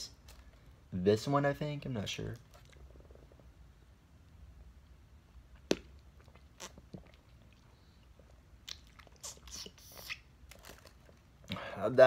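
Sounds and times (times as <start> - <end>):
wet mouth clicks biting jelly: 5.5 - 7.6.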